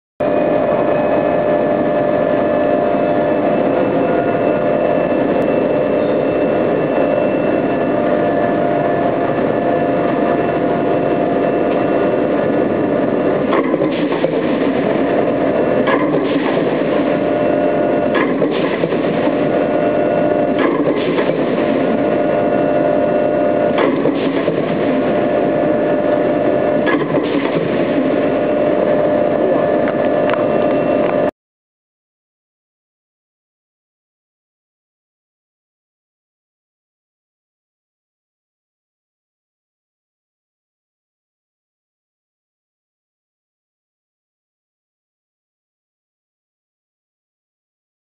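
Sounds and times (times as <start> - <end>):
forging press humming: 0.2 - 31.3.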